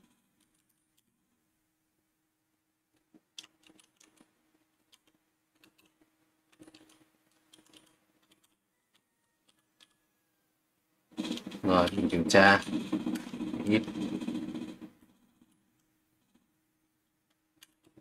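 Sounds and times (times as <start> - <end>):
keyboard typing clicks: 3.3 - 10.0, 17.6 - 18.0.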